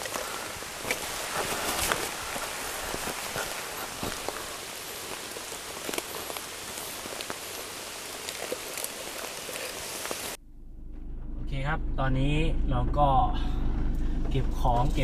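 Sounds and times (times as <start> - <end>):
drops ticking on leaves: 0.0 - 10.4
rain on leaves: 0.0 - 10.4.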